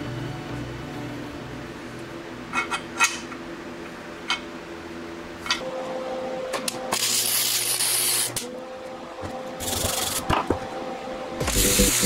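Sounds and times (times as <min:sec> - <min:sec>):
welder hissing: 0:11.4 - 0:12.0.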